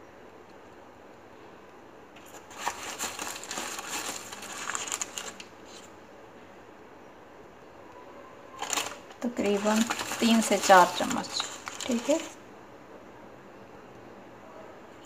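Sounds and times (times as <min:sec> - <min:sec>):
plastic packet crinkling: 0:02.2 - 0:05.9, 0:08.6 - 0:12.4.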